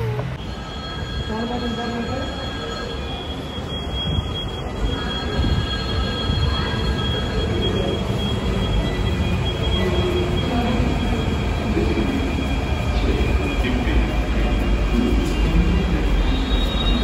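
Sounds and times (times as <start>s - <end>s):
train rumbling: 0.0s - 17.0s
high wheel squeal: 16.1s - 17.0s.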